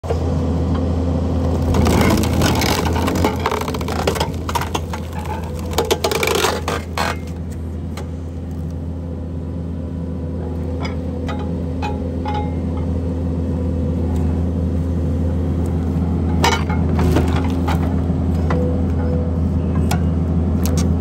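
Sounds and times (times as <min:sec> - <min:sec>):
engine humming: 0:00.0 - 0:21.0
wood cracking and splintering: 0:01.4 - 0:07.7, 0:17.0 - 0:18.0.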